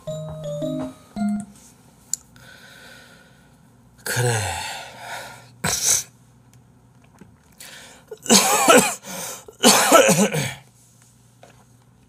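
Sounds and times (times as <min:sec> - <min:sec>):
man coughing: 0:08.1 - 0:10.6.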